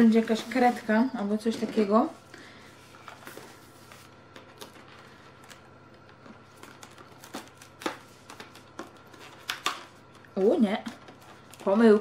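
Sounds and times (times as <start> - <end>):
cardboard rustling: 0.0 - 2.2, 2.8 - 9.8.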